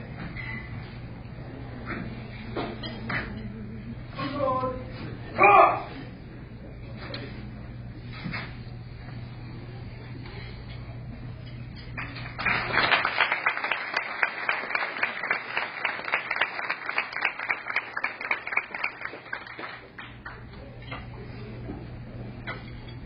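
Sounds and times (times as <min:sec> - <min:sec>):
audience applauding: 0:12.0 - 0:20.4.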